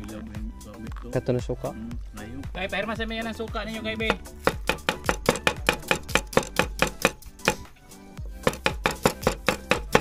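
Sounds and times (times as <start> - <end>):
knife chopping on cutting board: 4.1 - 7.7, 8.3 - 10.0.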